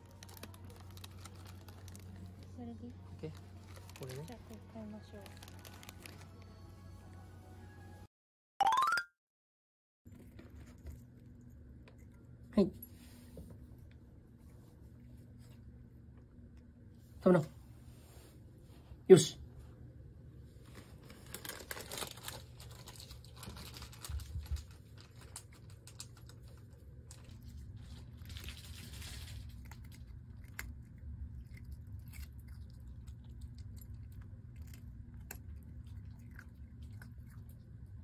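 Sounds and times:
puppy crunching a cookie: 0.0s - 6.6s, 20.8s - 38.0s.

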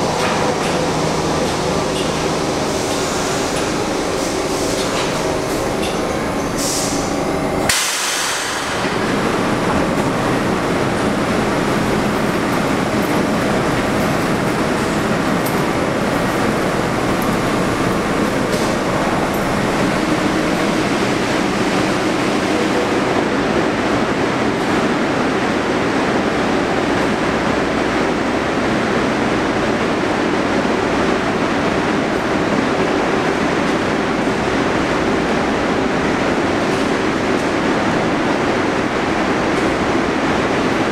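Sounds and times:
subway train rumble: 0.0s - 40.9s.

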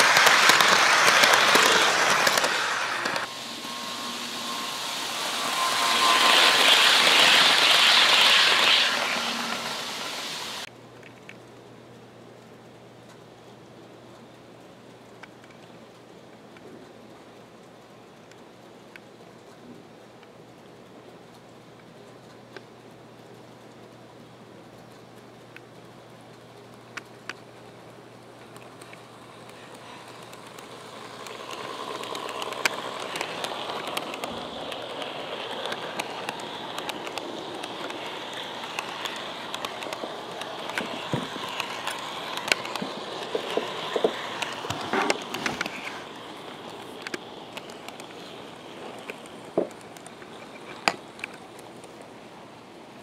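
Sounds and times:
sharp clicks: 0.0s - 3.3s
model train rolling rattle: 0.0s - 10.7s, 28.4s - 52.2s
faint motor whine: 0.0s - 53.0s.

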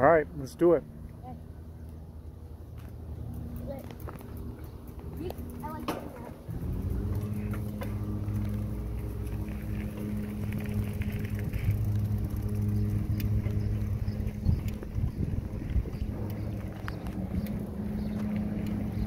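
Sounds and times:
bicycle rolling on trail: 0.0s - 19.0s.

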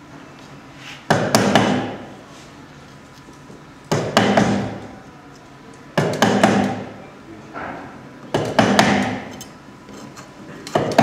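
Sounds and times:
chisel struck into timber: 1.1s - 2.0s, 3.9s - 4.9s, 6.0s - 6.9s, 8.3s - 9.4s, 10.7s - 11.0s.

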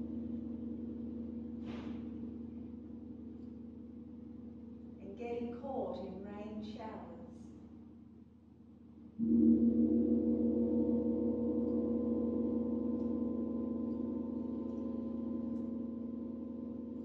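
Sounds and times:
large gong ringing: 9.2s - 17.0s.

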